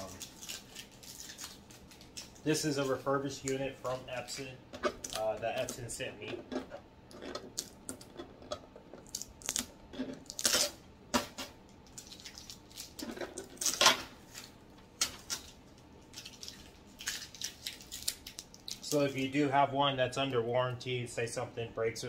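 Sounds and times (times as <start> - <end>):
tape peeling off plastic: 9.0 - 10.8, 11.9 - 19.0.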